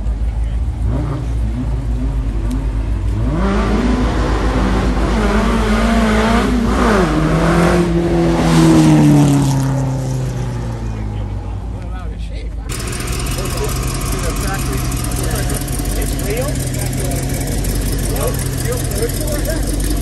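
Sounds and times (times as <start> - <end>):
car engine accelerating: 0.0 - 20.0.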